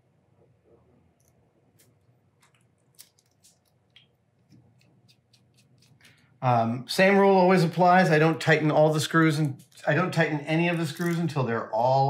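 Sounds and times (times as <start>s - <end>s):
small metal parts clicking: 10.8s - 11.4s.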